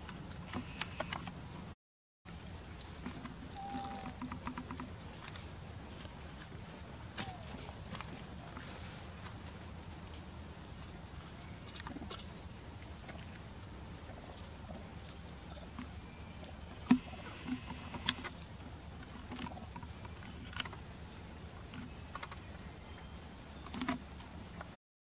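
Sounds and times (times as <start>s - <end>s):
monkeys scampering over stone and leaves: 2.5s - 20.8s.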